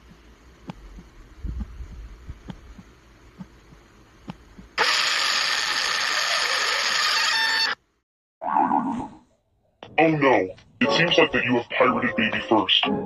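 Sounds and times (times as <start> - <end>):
slow low thumps: 0.0 - 4.8
harsh static noise with tones: 0.0 - 8.0.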